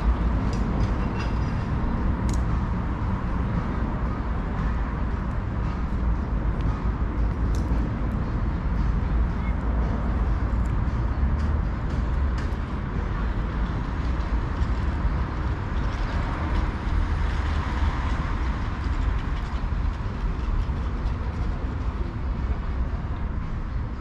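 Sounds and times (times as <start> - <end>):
road traffic rumble: 0.0 - 24.0.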